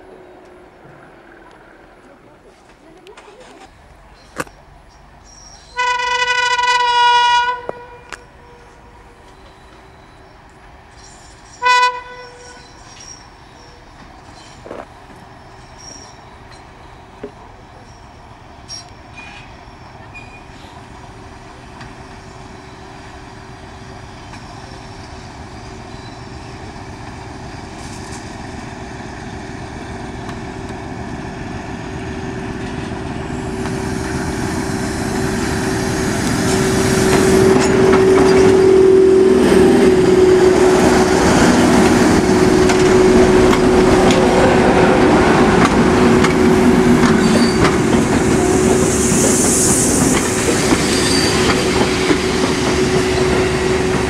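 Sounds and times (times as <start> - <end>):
diesel locomotives at full power: 0.0 - 12.1, 13.3 - 54.0
high squeal: 33.9 - 42.1, 47.1 - 47.7, 48.3 - 53.9.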